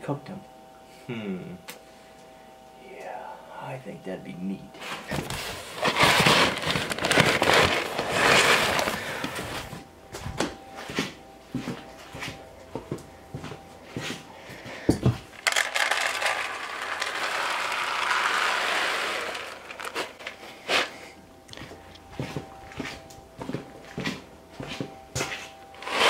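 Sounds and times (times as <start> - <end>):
paper bags rustling: 4.8 - 9.8, 15.3 - 21.0
feed crumbles pouring into tray: 15.4 - 20.3.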